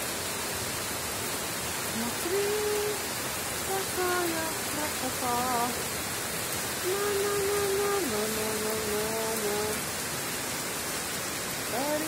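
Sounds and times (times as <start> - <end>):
heavy rain pouring: 0.0 - 12.0
woman humming: 6.9 - 9.8.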